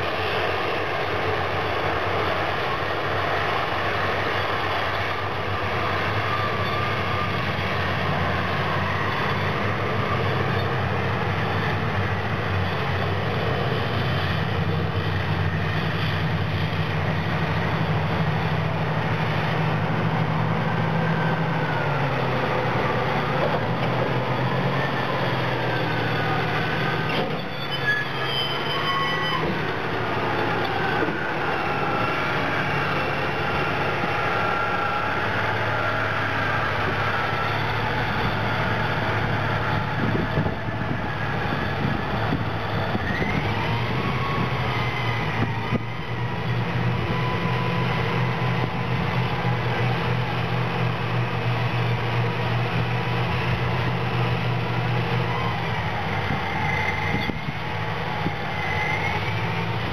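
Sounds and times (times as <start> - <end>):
diesel engines running under load: 0.0 - 59.9
high metallic squeals: 4.3 - 10.8, 20.6 - 49.8, 55.1 - 59.9.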